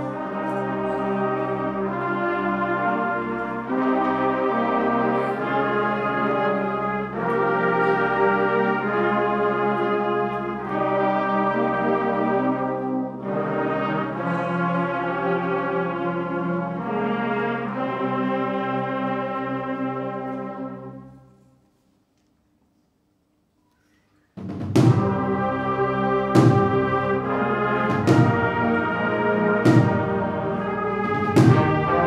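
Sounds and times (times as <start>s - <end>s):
brass band playing a march: 0.0s - 21.5s, 24.4s - 32.0s.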